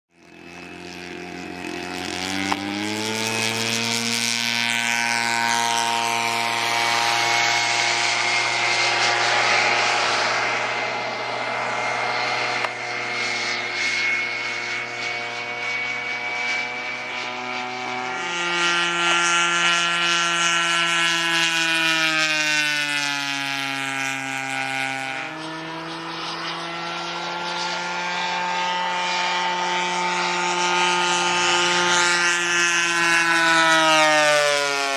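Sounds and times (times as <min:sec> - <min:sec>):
model airplane engine running: 0:00.1 - 0:34.9.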